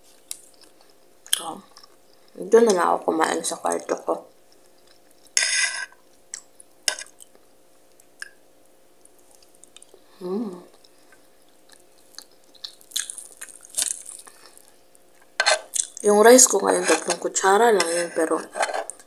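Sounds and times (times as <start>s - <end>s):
chewing: 4.5s - 8.4s, 9.0s - 10.0s, 10.7s - 16.0s
short humming vocal sound: 10.0s - 10.8s.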